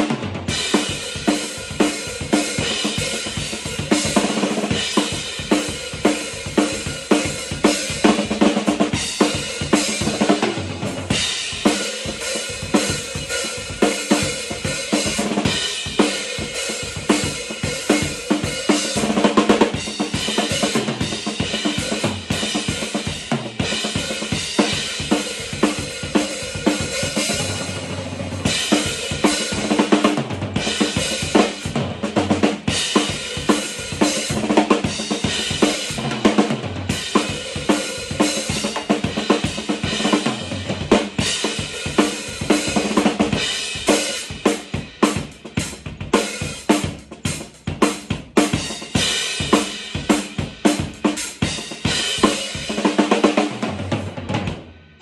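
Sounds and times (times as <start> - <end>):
bass drum: 0.0 - 52.9.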